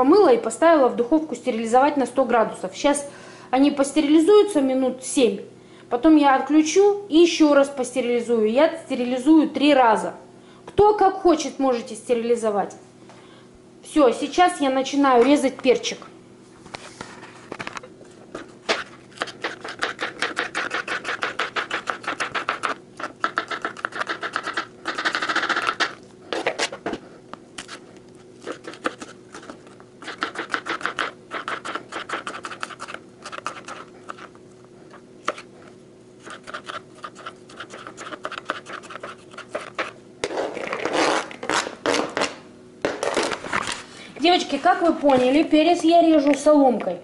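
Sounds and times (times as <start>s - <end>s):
knife scraping across board: 18.6s - 27.0s, 28.4s - 34.3s, 36.2s - 42.2s.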